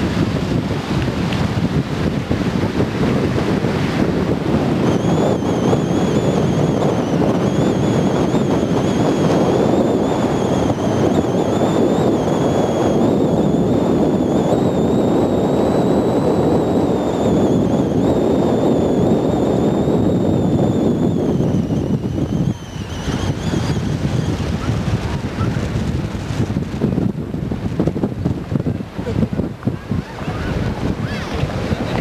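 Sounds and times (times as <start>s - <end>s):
wind buffeting microphone: 0.0s - 32.0s
faint wavering whine: 4.3s - 24.8s.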